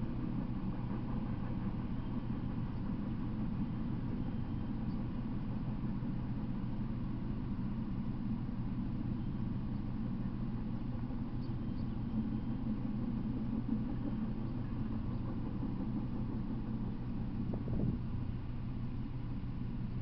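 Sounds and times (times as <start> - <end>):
truck engine running: 9.9 - 20.0.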